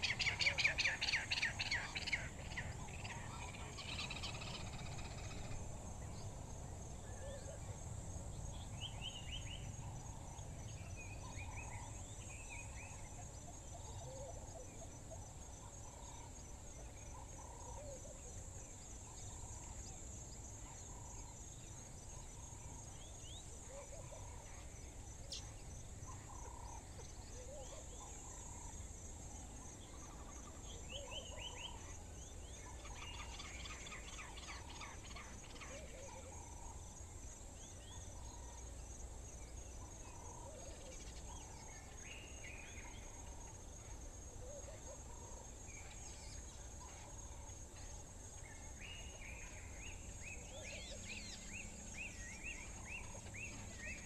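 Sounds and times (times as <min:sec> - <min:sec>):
birds chirping: 0:44.8 - 0:54.0.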